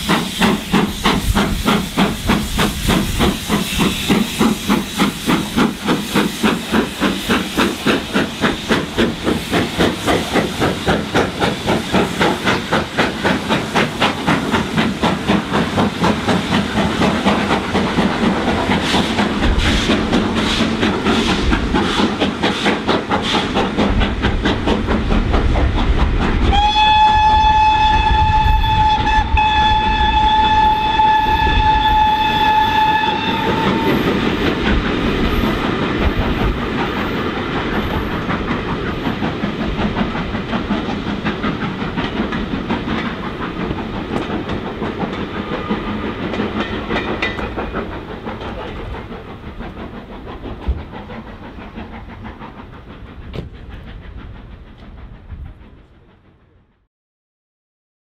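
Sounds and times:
train wheels clacking over rail joints: 0:00.0 - 0:56.5
steam locomotive exhaust beating: 0:00.0 - 0:56.9
steam whistle: 0:26.5 - 0:34.4.

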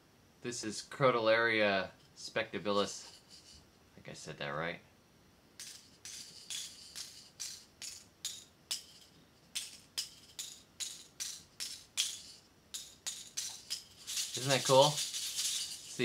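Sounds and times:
dry seed pods rattling: 0:05.6 - 0:16.0.

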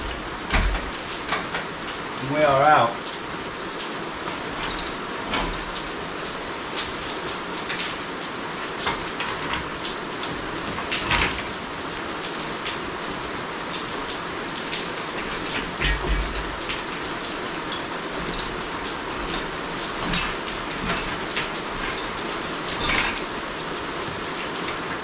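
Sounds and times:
metal knocks and clanks: 0:00.0 - 0:02.0, 0:04.2 - 0:06.0, 0:08.8 - 0:11.7, 0:13.9 - 0:25.0
steady rain-like hiss: 0:00.0 - 0:25.0.

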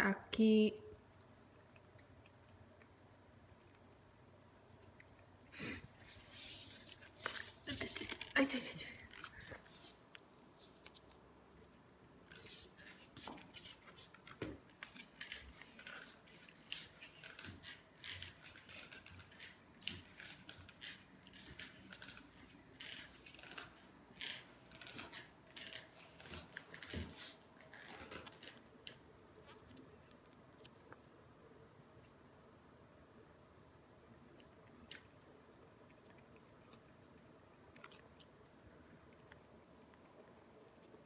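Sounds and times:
cats licking: 0:00.9 - 0:28.8, 0:34.2 - 0:41.0.

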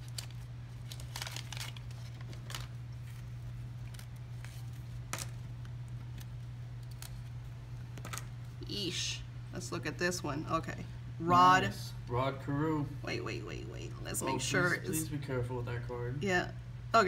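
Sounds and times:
cards rustling and clicking: 0:00.0 - 0:08.4
steady low hum: 0:00.0 - 0:17.0.

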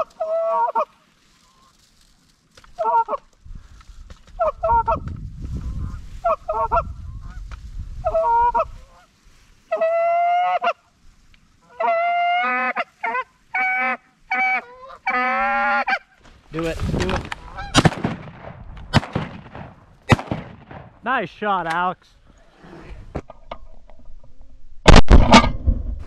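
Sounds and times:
geese honking: 0:08.0 - 0:09.1, 0:09.7 - 0:10.9, 0:11.6 - 0:16.1, 0:17.4 - 0:17.8.

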